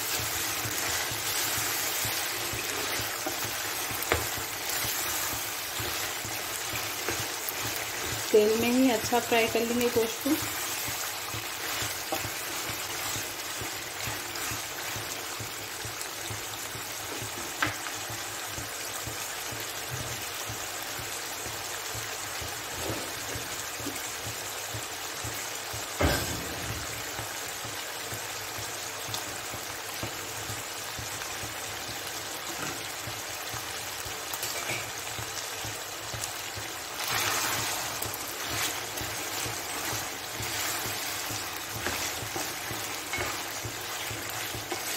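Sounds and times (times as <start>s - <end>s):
spatula scraping meat in pan: 0.0s - 15.2s, 37.0s - 44.9s
meat frying in hot oil: 0.0s - 44.9s.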